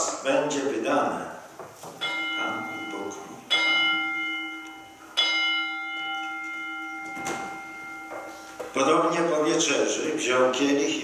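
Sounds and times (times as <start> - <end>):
altar bell ringing: 2.0 - 9.8.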